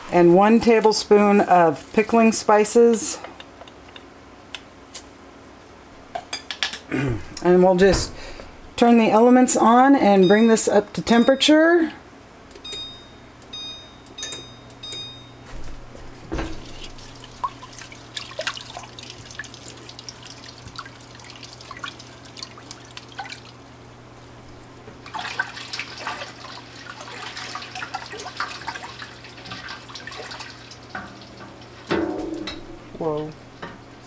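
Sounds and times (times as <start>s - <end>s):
touch control beeps: 10.2s - 11.5s, 12.6s - 15.4s
liquid sloshing: 16.3s - 23.6s, 25.0s - 32.9s.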